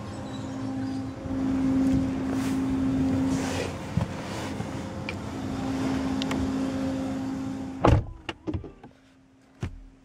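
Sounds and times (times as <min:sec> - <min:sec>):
car door shutting thud: 0:07.8 - 0:08.9.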